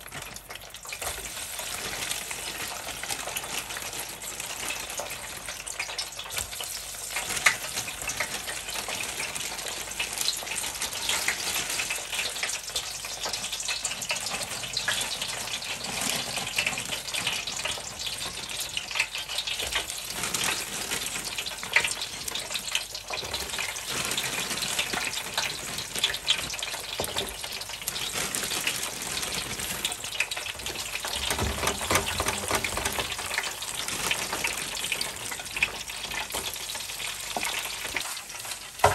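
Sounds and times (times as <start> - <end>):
fries sizzling in bubbling oil: 0.0 - 38.9.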